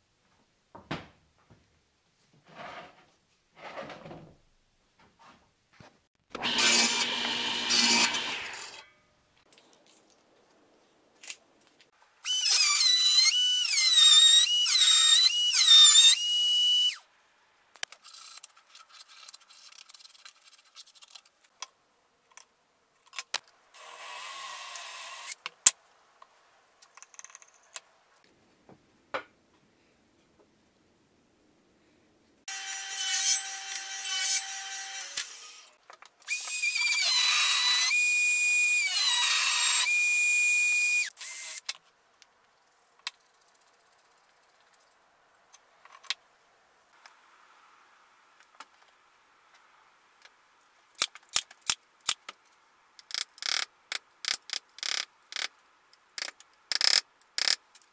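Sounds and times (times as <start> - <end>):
cordless drill boring wood: 6.3 - 8.8, 12.2 - 17.0, 32.5 - 35.7, 36.3 - 41.6
router whining while cutting wood: 6.4 - 8.8.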